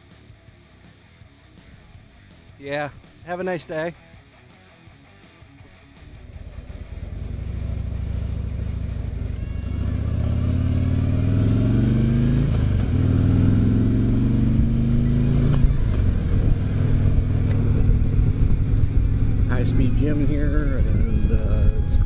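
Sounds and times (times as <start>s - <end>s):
motorcycle engine accelerating: 5.6s - 22.0s.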